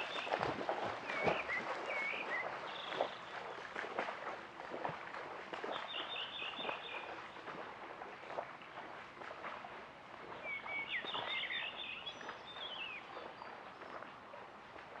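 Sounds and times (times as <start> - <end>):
lake water lapping: 0.0 - 15.0.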